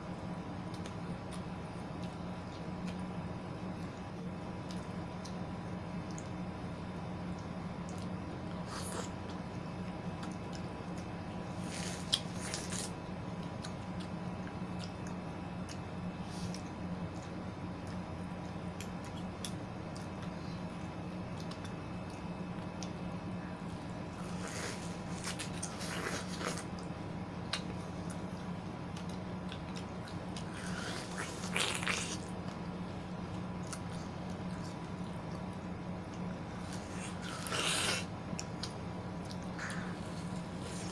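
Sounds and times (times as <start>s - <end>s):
steady low hum: 0.0s - 40.9s
wet biting and chewing: 7.3s - 20.4s, 23.8s - 40.9s.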